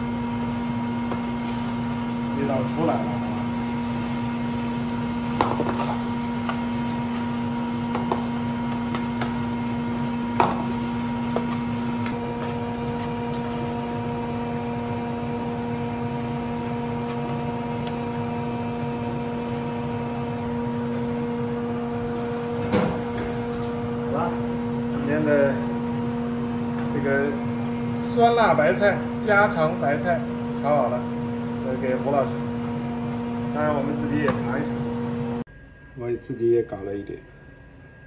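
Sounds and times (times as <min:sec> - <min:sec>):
machinery hum: 0:00.0 - 0:38.0.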